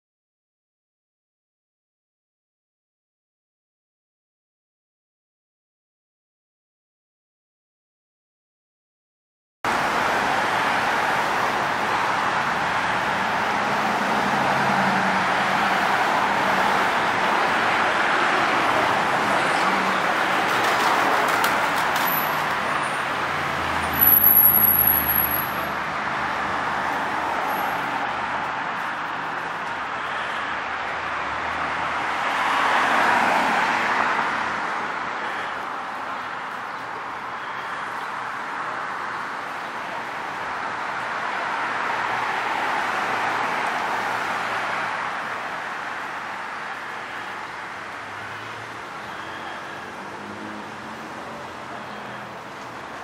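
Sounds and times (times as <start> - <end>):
passing cars: 9.7 - 53.0
vehicle passing by: 10.2 - 29.2, 49.8 - 52.5.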